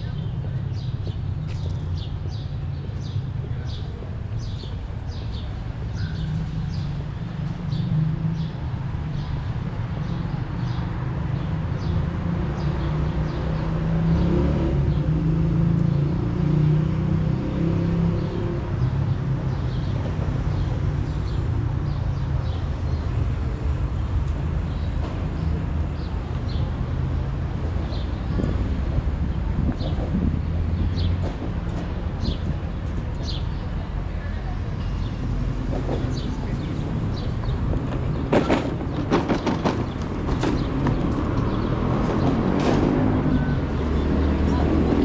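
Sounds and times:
low traffic rumble: 0.0 - 45.0
vehicle passing: 23.0 - 31.3.

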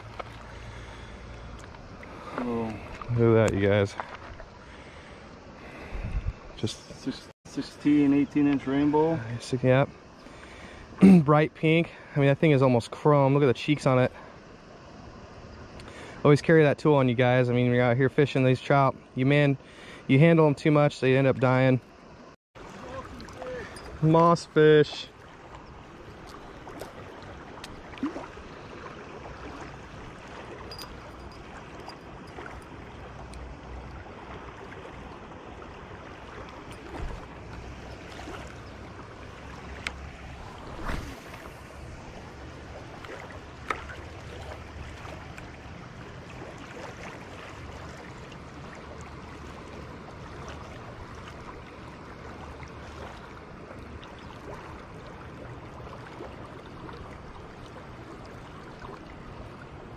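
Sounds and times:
river water rushing: 22.0 - 59.9.

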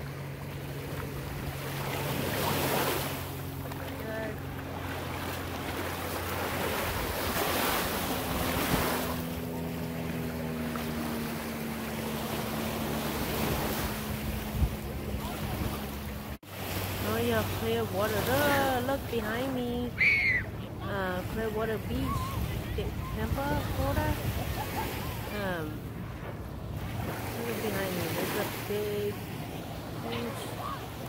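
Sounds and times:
small waves washing ashore: 0.0 - 31.0
steady low hum: 0.0 - 31.0
wind on microphone: 12.8 - 16.3.

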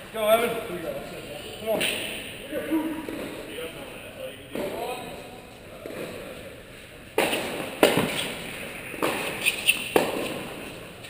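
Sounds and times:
tennis ball bouncing: 7.1 - 10.9
tennis ball struck by racket: 7.2 - 10.8.

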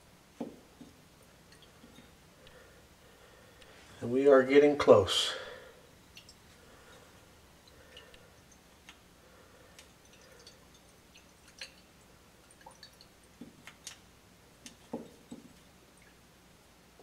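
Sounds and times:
liquid dripping into flask: 6.0 - 9.0, 9.7 - 14.0.

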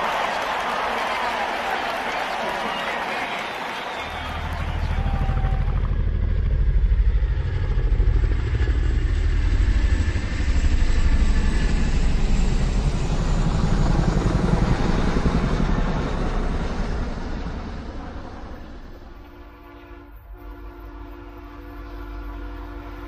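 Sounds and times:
loud engine running: 4.0 - 18.9.

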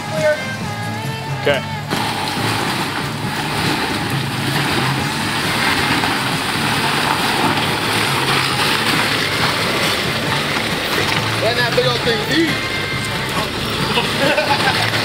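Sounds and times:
off-road vehicle engine running: 0.0 - 15.0.

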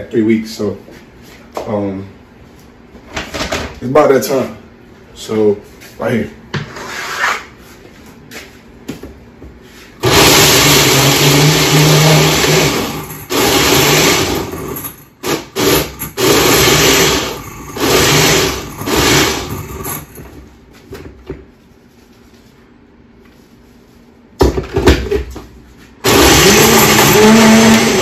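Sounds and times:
blender pureeing: 10.0 - 20.1, 26.0 - 28.0.

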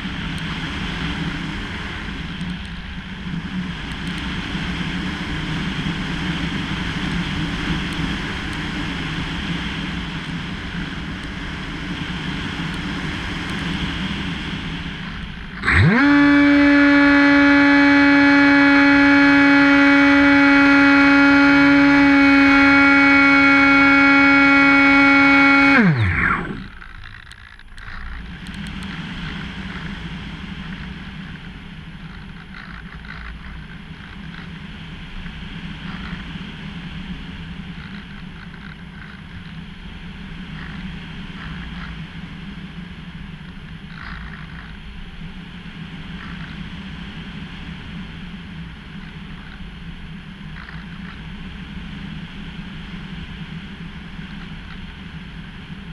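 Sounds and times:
electric motor and propeller whine: 0.0 - 55.9.

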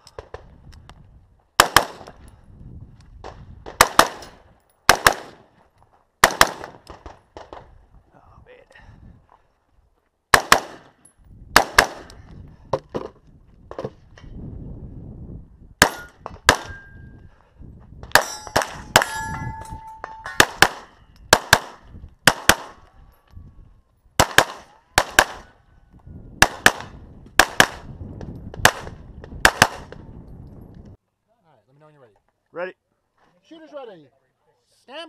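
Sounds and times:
pistol firing rapidly: 1.6 - 2.0, 3.8 - 4.2, 4.9 - 5.4, 6.2 - 6.7, 10.3 - 10.8, 11.6 - 12.1, 20.4 - 22.8, 24.2 - 25.5, 26.4 - 27.9
steel targets ringing: 15.8 - 17.1, 18.2 - 20.6.

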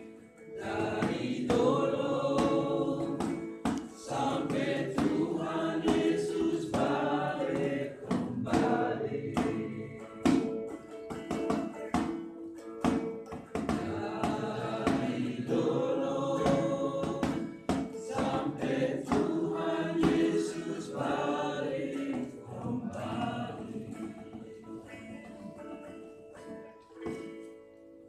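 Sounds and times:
children singing a church song: 0.6 - 10.5, 13.8 - 24.5.

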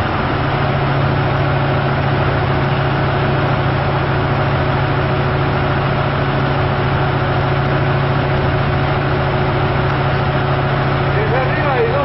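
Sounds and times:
engine running steadily: 0.0 - 12.0.

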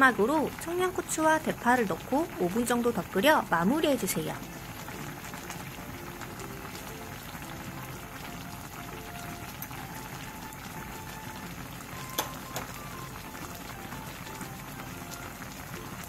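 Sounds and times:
stew bubbling in a pot: 0.0 - 16.0.

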